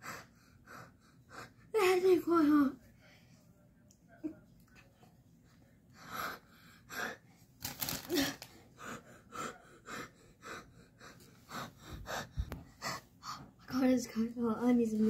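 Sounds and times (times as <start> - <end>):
child panting and gasping: 8.1 - 13.6.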